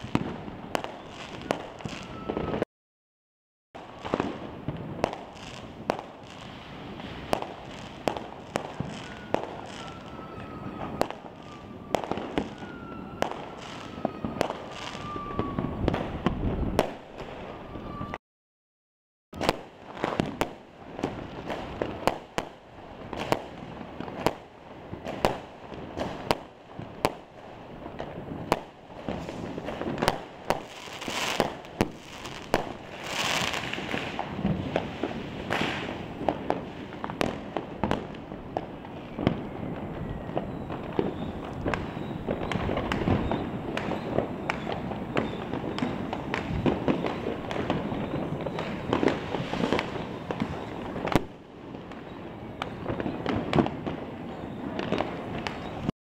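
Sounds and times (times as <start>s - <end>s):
fireworks bangs and pops: 0.0s - 2.7s, 3.8s - 18.2s, 19.4s - 55.9s
falling whistle: 0.8s - 2.6s, 8.7s - 16.0s, 17.4s - 18.2s, 39.0s - 49.0s.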